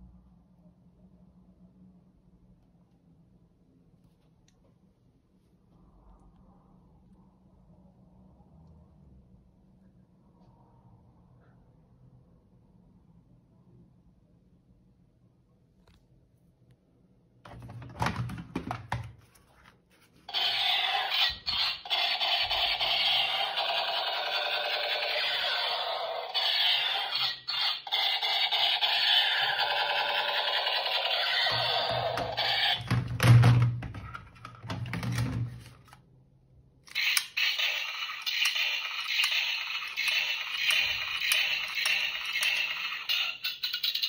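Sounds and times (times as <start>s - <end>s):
toy gun electronic sound effect: 20.3s - 33.2s, 36.9s - 44.0s
plastic toy guns clicking and rattling: 36.9s - 44.0s.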